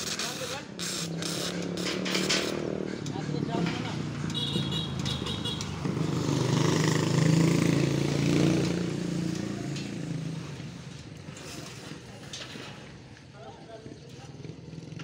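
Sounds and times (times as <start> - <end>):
vehicle engine passing: 0.7 - 11.2.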